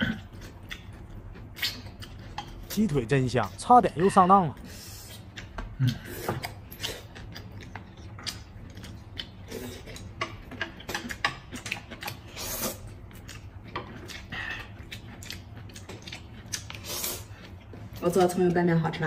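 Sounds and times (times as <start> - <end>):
chewing and slurping noodles: 0.0 - 2.8, 3.4 - 18.1.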